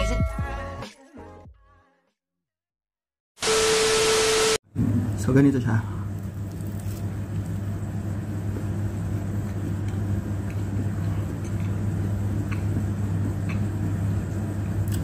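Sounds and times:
steady low hum: 4.8 - 15.0
person chewing crunchy food: 6.2 - 7.6.

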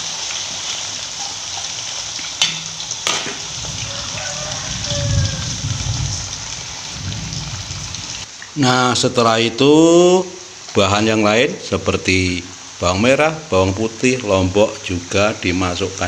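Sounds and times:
potatoes sizzling in hot oil: 0.0 - 8.3.

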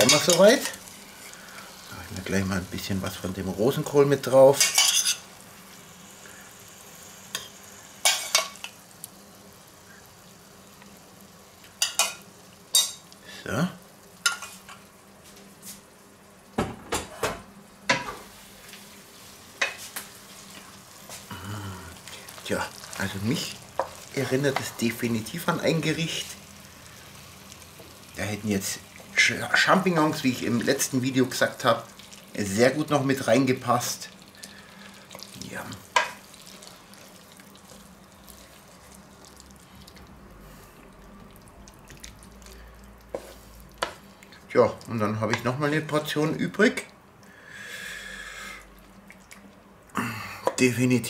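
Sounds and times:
metal utensils clinking on cookware: 0.0 - 0.8, 4.6 - 5.2
wet noodle sounds: 36.2 - 45.0, 48.6 - 50.0.

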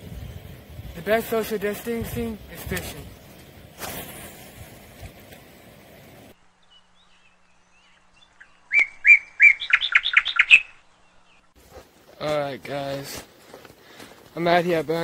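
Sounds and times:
low outdoor background noise: 0.0 - 15.0
high bird-like chirps: 6.6 - 11.6.

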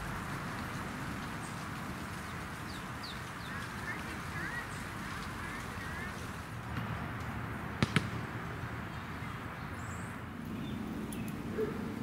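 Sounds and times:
outdoor background noise: 0.0 - 12.0.

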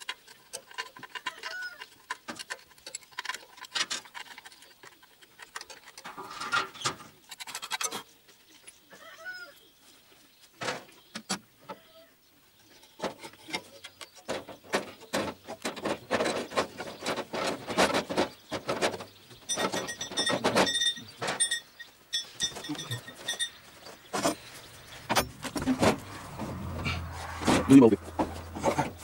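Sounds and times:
high metallic ringing: 19.5 - 23.7.

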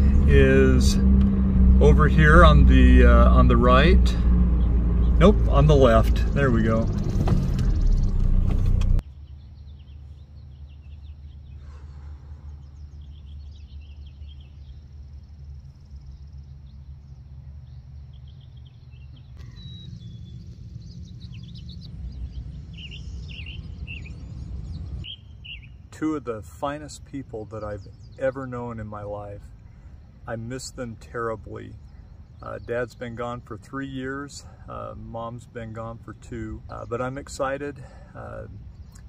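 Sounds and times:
car cabin noise while driving: 0.0 - 9.0
low steady rumble: 0.0 - 39.0
small birds chirping: 1.7 - 8.4, 9.0 - 39.0.

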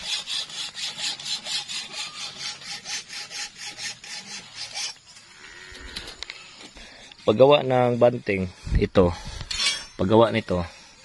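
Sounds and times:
hand saw cutting rod: 0.0 - 5.2.

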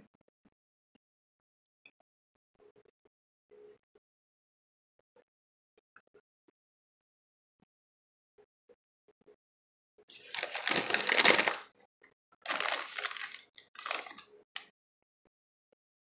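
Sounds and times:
chip bag crinkling: 10.1 - 11.7, 12.5 - 14.7.

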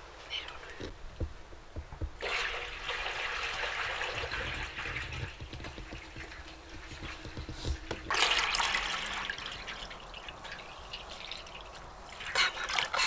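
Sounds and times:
liquid pouring and splashing into pan: 2.2 - 7.2, 8.0 - 13.0.

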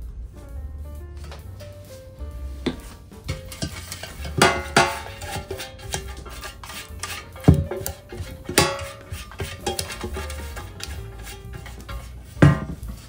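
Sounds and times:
plucked string music: 0.7 - 13.0
metal loaf tin knocking: 2.6 - 13.0.

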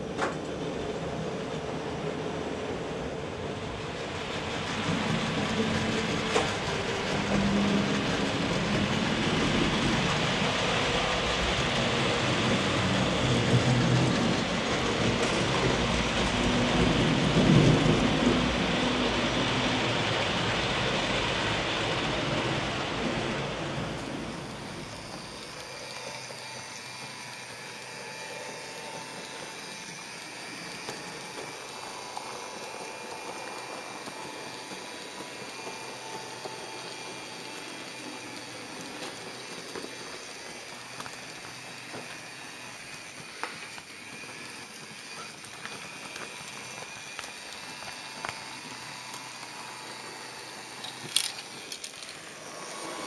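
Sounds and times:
faint motor whine: 0.0 - 53.0
model car rolling on track: 0.0 - 53.0
wheel clicks: 23.9 - 53.0.

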